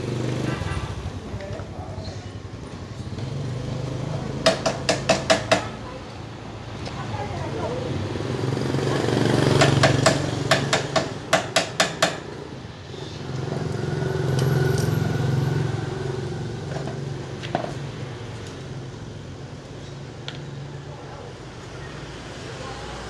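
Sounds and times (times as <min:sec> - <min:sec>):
small motorcycle engine revving: 0:00.0 - 0:01.3, 0:03.0 - 0:04.4, 0:08.1 - 0:10.5, 0:12.8 - 0:17.1
sharp knocks: 0:04.4 - 0:05.7, 0:09.6 - 0:12.3.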